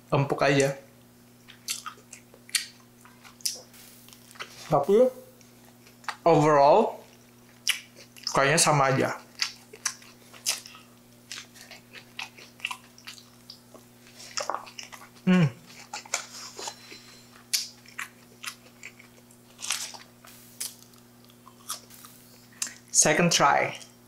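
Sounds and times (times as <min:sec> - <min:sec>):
faint electrical hum: 0:00.0 - 0:24.0
person chewing food: 0:01.4 - 0:04.7, 0:05.4 - 0:06.2, 0:07.0 - 0:08.4, 0:09.2 - 0:22.9
person humming: 0:15.2 - 0:15.6.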